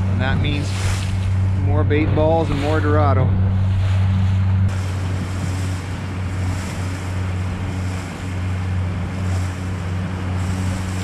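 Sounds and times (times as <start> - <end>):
boat engine humming: 0.0 - 11.0
sea water rushing around hull: 0.0 - 11.0
wind: 0.0 - 11.0.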